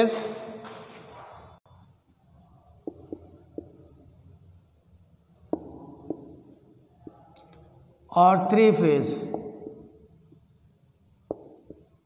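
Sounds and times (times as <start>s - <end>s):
marker writing on whiteboard: 1.6s - 12.0s.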